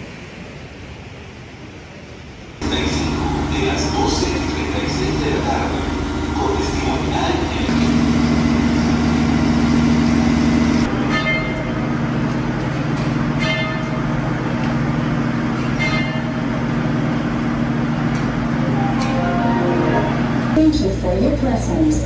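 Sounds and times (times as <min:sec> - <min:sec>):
train engine idling drone: 0:00.0 - 0:22.0.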